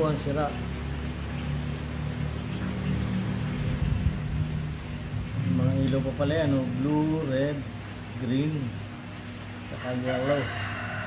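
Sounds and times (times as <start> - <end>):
cooling fan airy whoosh: 0.0 - 9.8
low hum: 0.6 - 6.7.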